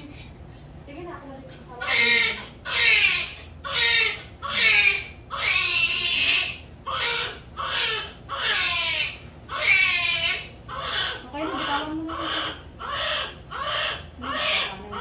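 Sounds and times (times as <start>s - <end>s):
newborn baby crying: 1.8s - 15.0s.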